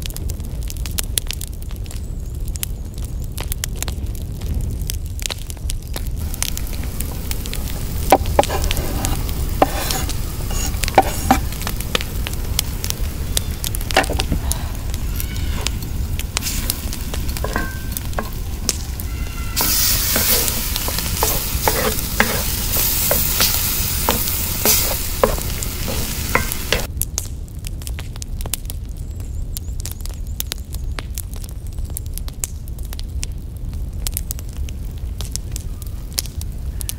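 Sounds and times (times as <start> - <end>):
food sizzling in hot oil: 6.2 - 26.9
wooden spatula scraping skillet: 6.4 - 26.9.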